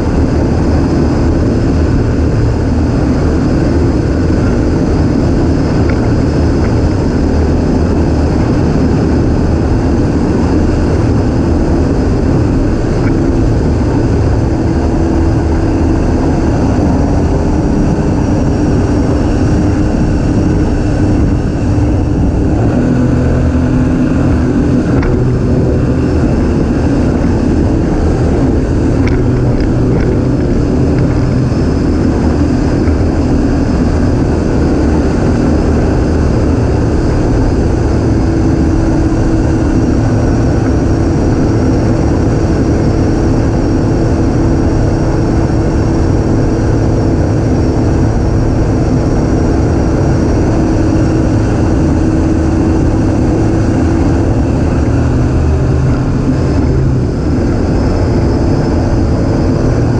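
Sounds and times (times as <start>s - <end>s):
outboard motor running at speed: 0.0s - 59.9s.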